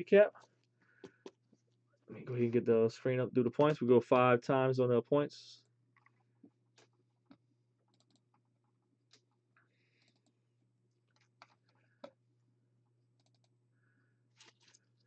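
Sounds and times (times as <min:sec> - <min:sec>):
faint clicks and taps: 0:05.9 - 0:09.4.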